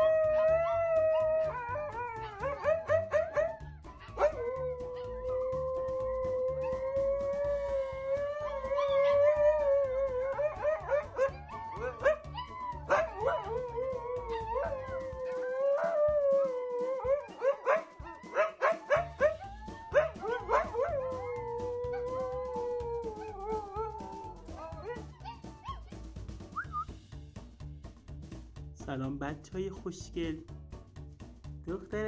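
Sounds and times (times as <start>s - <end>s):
dog long howl: 0.0s - 25.0s
puppies howling and yipping: 0.0s - 26.1s.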